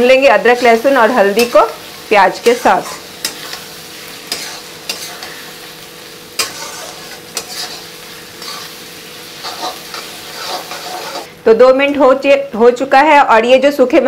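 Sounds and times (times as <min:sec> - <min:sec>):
onions sizzling in hot oil: 0:00.0 - 0:14.0
metal spatula scraping pan: 0:02.4 - 0:11.3.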